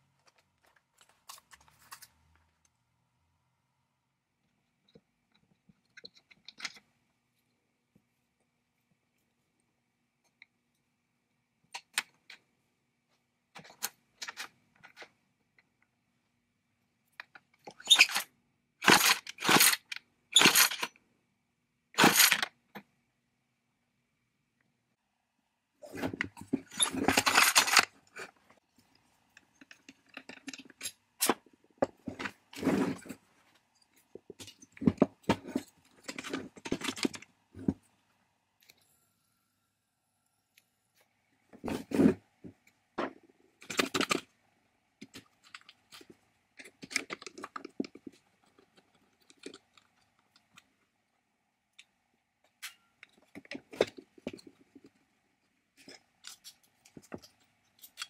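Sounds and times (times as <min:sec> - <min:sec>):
metal parts clinking into tray: 0:26.7 - 0:27.9.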